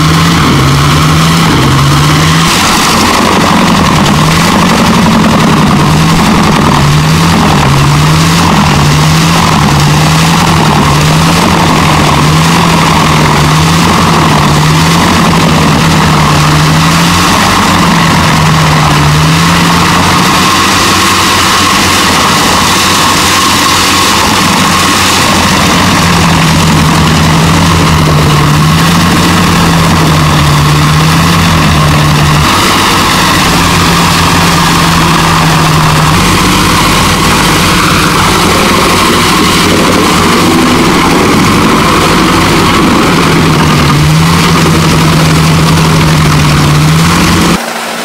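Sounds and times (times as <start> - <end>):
wood chipper running: 0.0 - 48.0.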